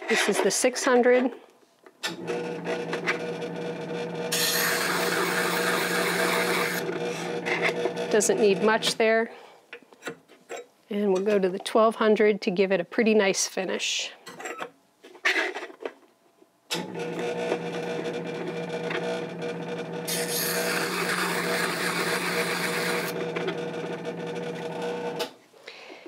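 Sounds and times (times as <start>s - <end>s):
electric hone motor humming: 2.2s - 9.0s, 16.8s - 25.2s.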